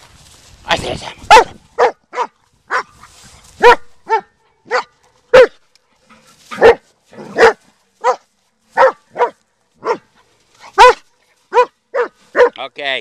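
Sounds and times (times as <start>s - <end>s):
dog barking: 1.3s - 3.0s, 3.6s - 5.6s, 6.5s - 12.6s.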